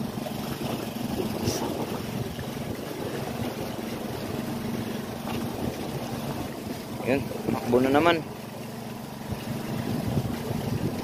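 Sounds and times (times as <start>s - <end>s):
boat engine idling: 0.0s - 11.0s
water noise: 0.0s - 11.0s
wind noise: 9.8s - 11.0s.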